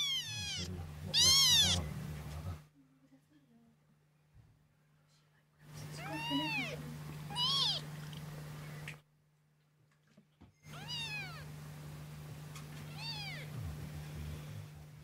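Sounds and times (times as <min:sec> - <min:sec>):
kittens mewing: 0:00.0 - 0:02.0, 0:05.8 - 0:08.2, 0:10.7 - 0:11.6, 0:12.8 - 0:14.0
steady low hum: 0:00.0 - 0:02.8, 0:10.7 - 0:15.0.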